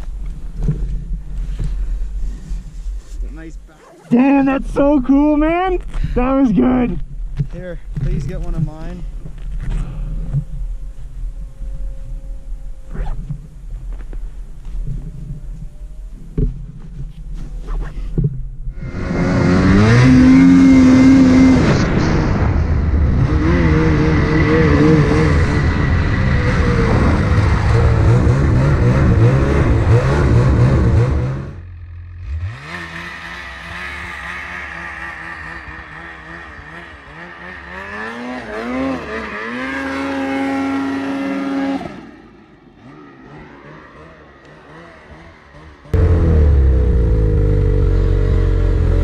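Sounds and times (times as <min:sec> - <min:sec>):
snowmobile engine revving: 0:18.7 - 0:49.0.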